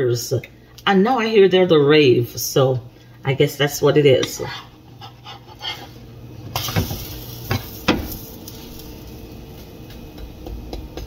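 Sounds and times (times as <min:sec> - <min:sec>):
spatula scraping frying pan: 0:04.2 - 0:06.0
batter sizzling: 0:04.7 - 0:11.0.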